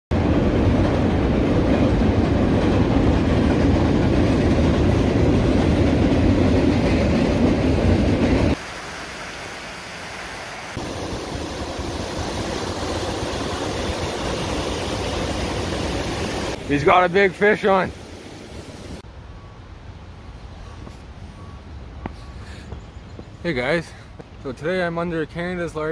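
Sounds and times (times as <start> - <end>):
freight train rumbling on bridge: 0.1 - 8.9, 10.7 - 25.8
water rushing over dam: 8.6 - 19.0.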